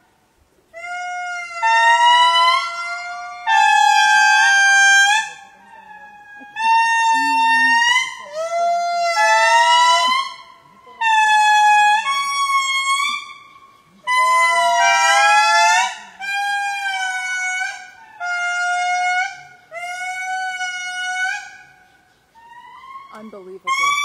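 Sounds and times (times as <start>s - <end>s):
lemurs calling: 0.7s - 24.0s.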